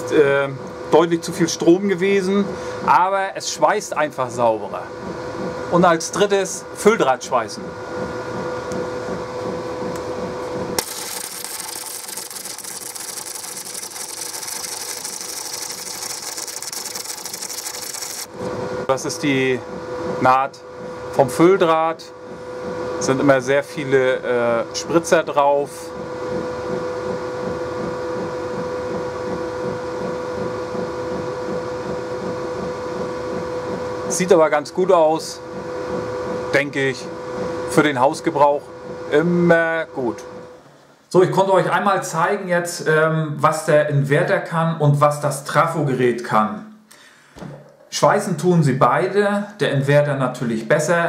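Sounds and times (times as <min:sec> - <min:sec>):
fan motor humming: 0:00.0 - 0:42.4
welder hum: 0:10.7 - 0:18.5
welding arc crackling: 0:10.8 - 0:18.4.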